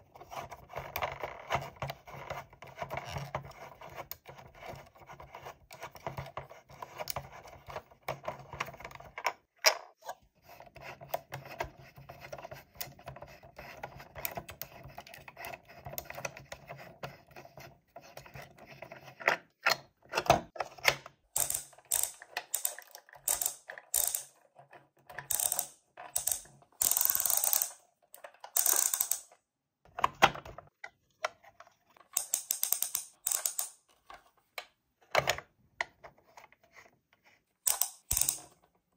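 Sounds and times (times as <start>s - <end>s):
plastic toy mechanism ratcheting: 21.3s - 24.4s, 25.2s - 29.4s, 32.0s - 33.8s, 37.7s - 38.6s.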